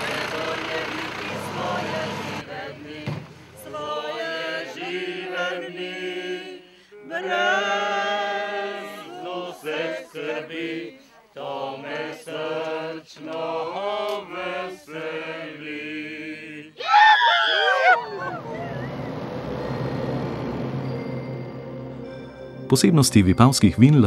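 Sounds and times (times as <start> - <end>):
group of voices singing: 0.0 - 16.8.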